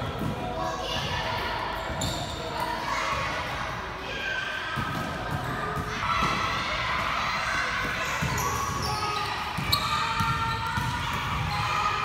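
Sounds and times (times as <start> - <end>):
basketballs dribbling on wood floor: 9.6 - 11.6.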